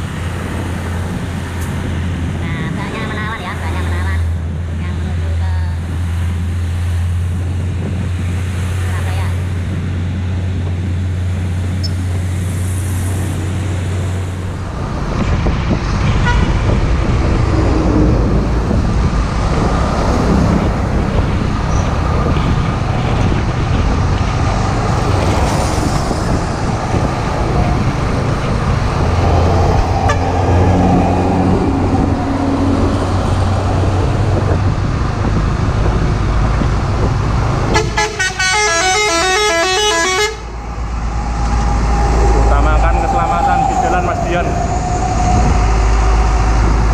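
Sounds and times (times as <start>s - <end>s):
diesel truck engine rumble: 0.0s - 46.9s
road traffic: 0.0s - 46.9s
multi-tone horn warbling: 16.0s - 21.0s, 27.3s - 34.3s, 37.7s - 46.9s.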